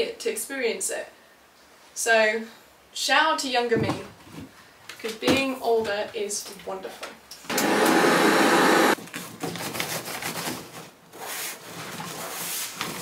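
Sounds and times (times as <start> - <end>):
handheld vacuum cleaner running: 7.5 - 9.0.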